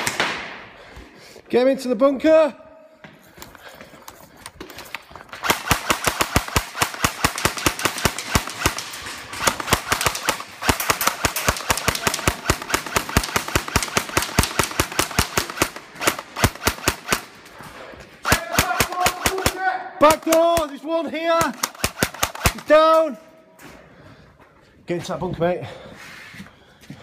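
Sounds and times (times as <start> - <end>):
airsoft guns firing full auto: 5.3 - 17.5, 18.2 - 23.0.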